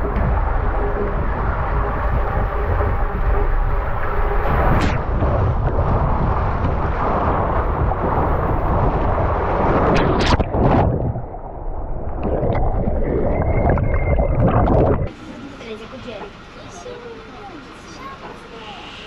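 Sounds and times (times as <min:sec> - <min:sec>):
rushing water: 0:00.0 - 0:15.2.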